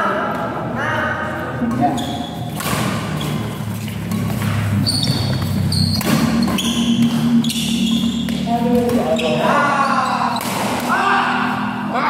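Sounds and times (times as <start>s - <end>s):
shoes squeaking on court: 1.7s - 10.6s
racket hitting shuttlecock: 2.4s - 9.1s, 10.3s - 11.0s.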